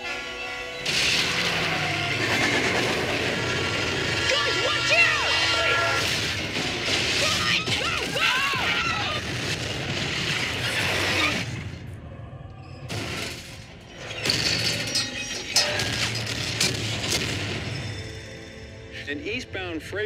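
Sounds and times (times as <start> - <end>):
film music: 0.0 - 20.0
explosions: 8.9 - 11.8.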